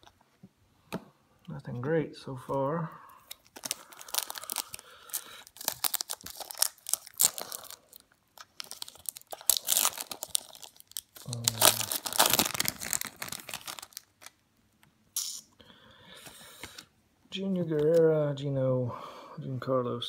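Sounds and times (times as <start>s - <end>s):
wrapper crinkling and tearing: 3.3s - 14.4s.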